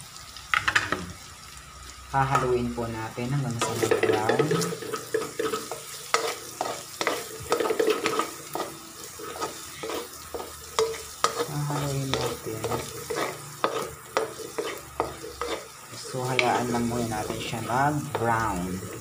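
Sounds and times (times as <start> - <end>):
onion sizzling in hot oil: 0.0 - 19.0
spatula scraping metal pan: 3.6 - 19.0.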